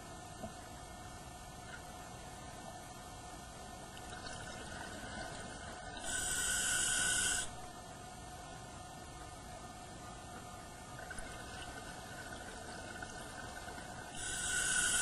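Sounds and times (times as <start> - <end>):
steady hum: 0.0 - 15.0
scuba regulator hissing underwater: 6.0 - 7.5, 14.2 - 15.0.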